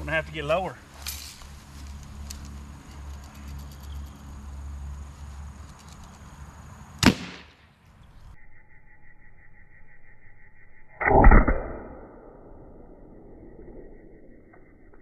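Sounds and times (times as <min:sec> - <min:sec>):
bb gun shot crack: 0:07.0 - 0:07.5.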